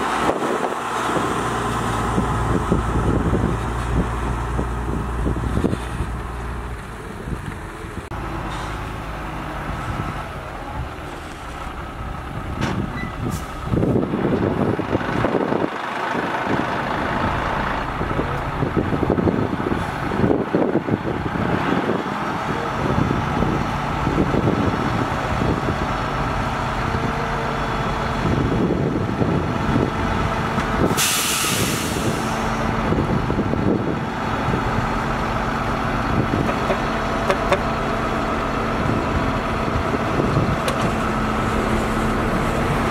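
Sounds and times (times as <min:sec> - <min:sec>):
diesel truck engine: 0:00.0 - 0:42.9
air brakes hissing: 0:08.4 - 0:08.9, 0:13.0 - 0:13.7, 0:30.8 - 0:32.6.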